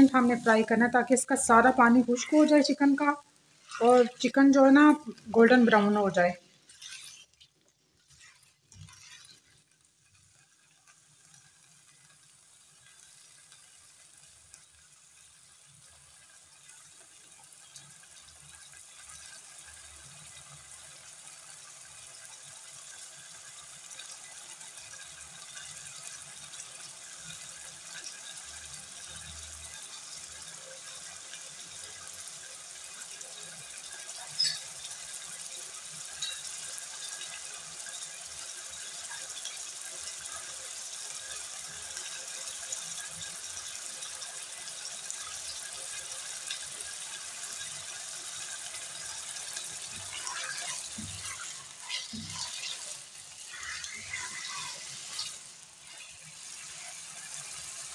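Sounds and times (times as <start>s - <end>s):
chicken sizzling in oil: 0.0s - 57.9s.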